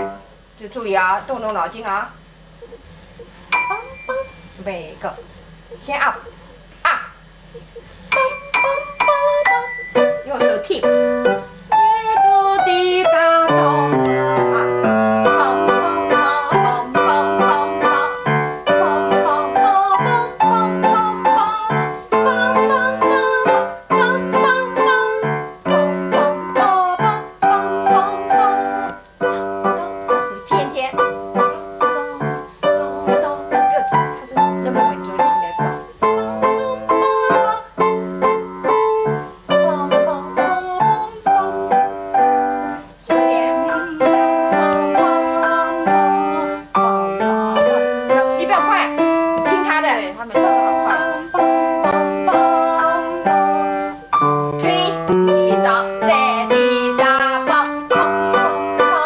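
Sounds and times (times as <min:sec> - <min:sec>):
piano duet: 0:00.0 - 0:02.8, 0:03.5 - 0:07.1, 0:08.1 - 0:59.0.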